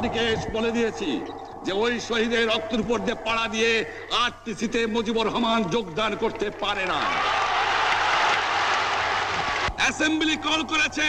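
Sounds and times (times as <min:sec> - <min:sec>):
crowd clapping: 0:05.6 - 0:09.9
crowd cheering: 0:06.0 - 0:10.1.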